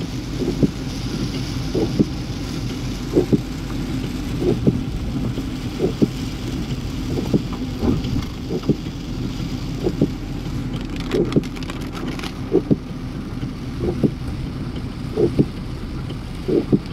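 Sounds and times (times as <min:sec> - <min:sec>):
engine and tyres rumbling: 0:00.0 - 0:16.9
crackly rattle: 0:09.8 - 0:12.8.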